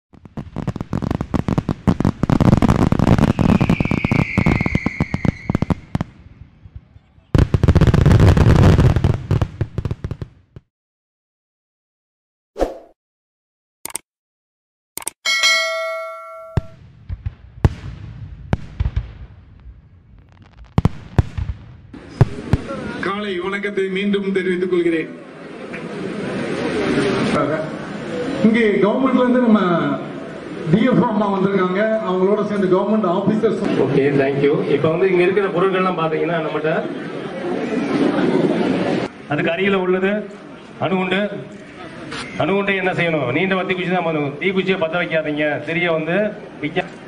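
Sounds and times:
firecrackers banging: 0.2s - 6.2s, 20.1s - 23.1s
high falling whistle: 3.2s - 5.9s.

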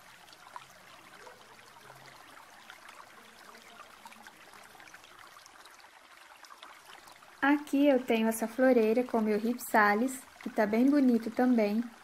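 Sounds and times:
low steady hiss: 0.0s - 12.0s.

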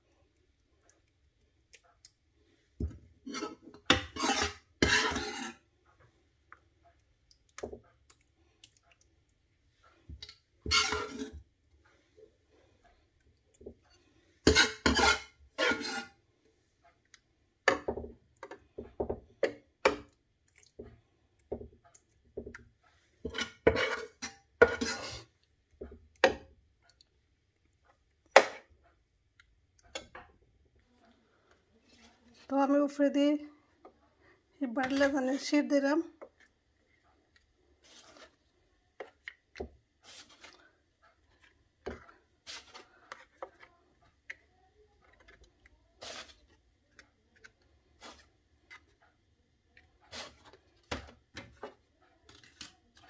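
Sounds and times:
metal spoon scraping baking tray: 3.2s - 5.6s, 10.6s - 11.4s, 14.4s - 16.2s, 23.3s - 25.3s.

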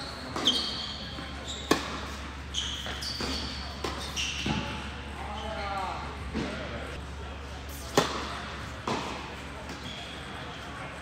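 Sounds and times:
shoes squeaking on court: 0.0s - 6.7s, 7.7s - 10.8s
tennis ball bouncing: 1.6s - 2.2s, 7.9s - 9.2s
racket hitting ball: 1.7s - 2.0s, 7.9s - 9.2s.

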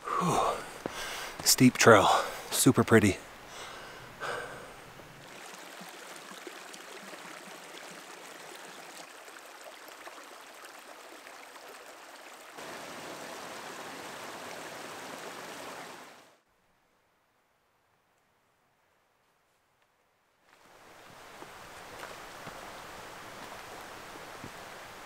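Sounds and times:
creek running over stones: 0.0s - 16.4s, 20.5s - 25.0s.

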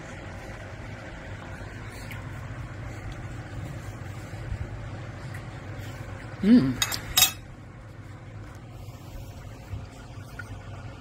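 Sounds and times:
steady low hum: 0.0s - 11.0s
person humming: 6.4s - 6.8s
knife clinking against plate: 6.8s - 7.5s.

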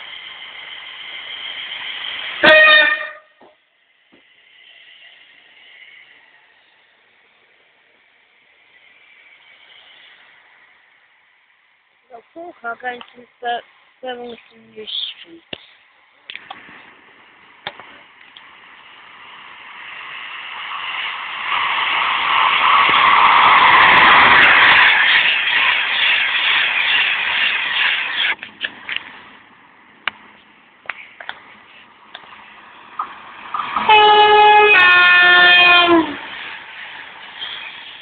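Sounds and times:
electric train passing at speed: 0.0s - 38.0s
two-tone train horn: 2.4s - 3.4s, 33.9s - 36.2s.

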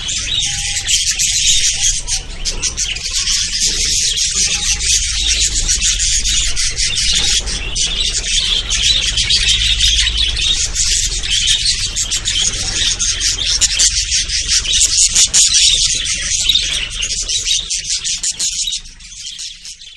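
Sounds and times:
steady low hum: 0.0s - 19.6s
small birds chirping: 0.0s - 19.9s.

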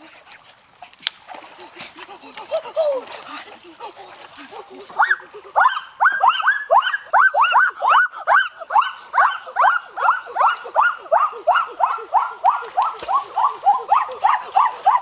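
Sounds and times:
chorus of animal yelps: 4.2s - 15.0s.

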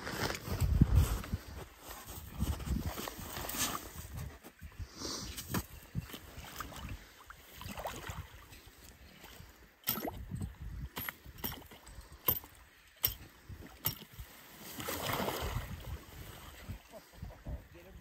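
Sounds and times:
water sloshing and splashing: 5.5s - 16.9s
sharp knocks and clinks: 11.0s - 14.1s.

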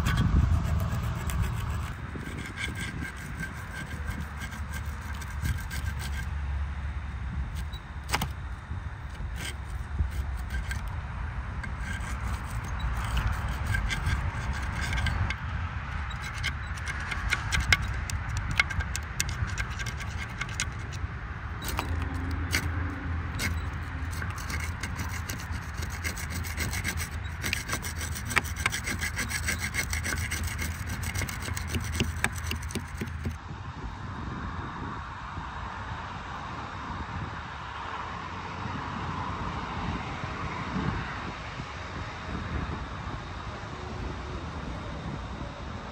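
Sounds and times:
abrasive tool scraping rusty iron: 0.0s - 6.9s, 7.5s - 33.4s
low hum: 0.0s - 36.8s.

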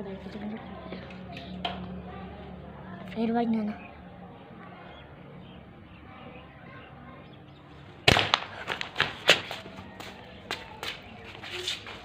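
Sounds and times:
air rifle firing: 8.1s - 8.8s
pellet knocking over target: 8.1s - 9.4s.

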